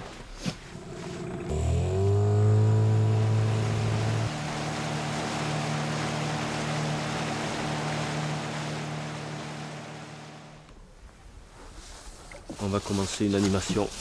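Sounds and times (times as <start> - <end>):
small boat motor running: 0.7 - 10.7
water rushing along hull: 0.7 - 10.7.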